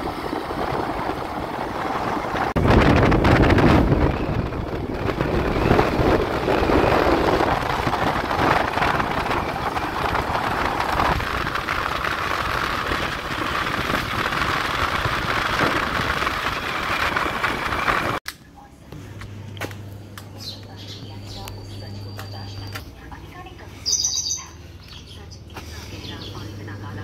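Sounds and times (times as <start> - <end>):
wind rushing over microphone: 0.0 - 18.2
vehicle road noise: 0.0 - 27.0.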